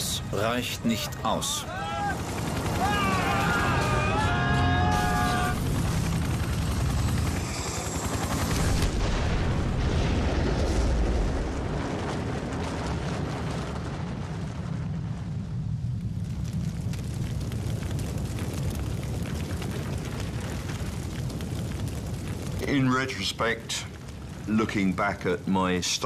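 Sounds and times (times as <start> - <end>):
heavy rumble: 0.0 - 26.0
crash impact and explosion: 8.4 - 22.6.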